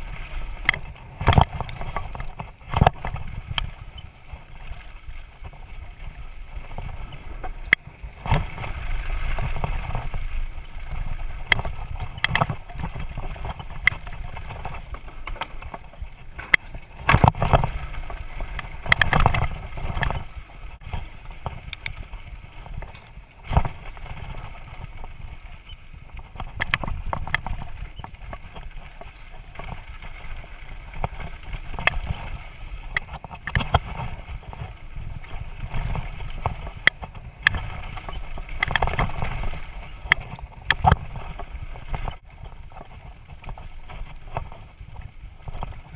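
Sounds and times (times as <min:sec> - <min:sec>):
tyres on dirt: 0:00.0 - 0:45.9
wind rumble on microphone: 0:00.0 - 0:45.9
bike clattering over bumps: 0:11.0 - 0:22.1.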